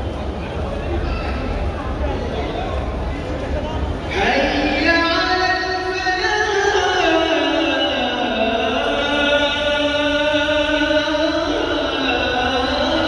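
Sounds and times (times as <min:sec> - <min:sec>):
person chanting: 0:04.1 - 0:13.0.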